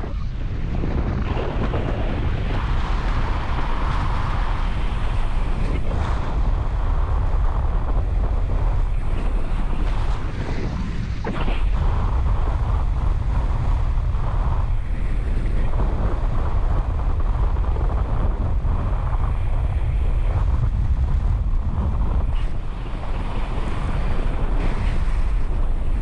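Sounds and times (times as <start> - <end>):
wind noise on microphone: 0.0 - 26.0.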